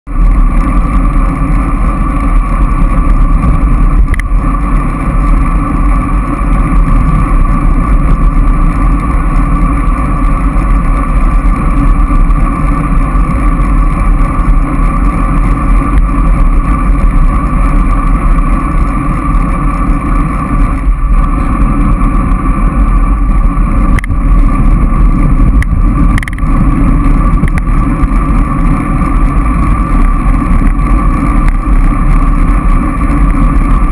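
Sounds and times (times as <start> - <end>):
wind rumble on microphone: 0.1 - 33.9.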